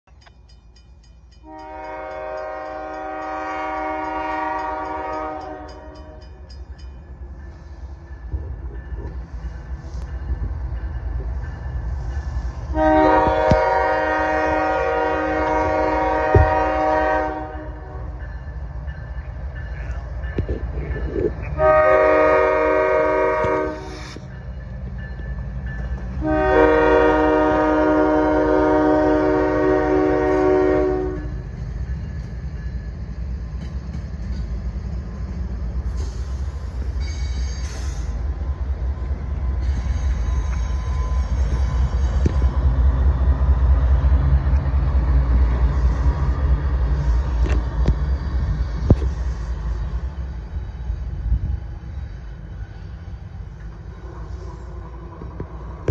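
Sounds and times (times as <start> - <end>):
locomotive air horn: 1.4 - 6.2, 12.7 - 18.1, 21.6 - 24.0, 26.2 - 31.4.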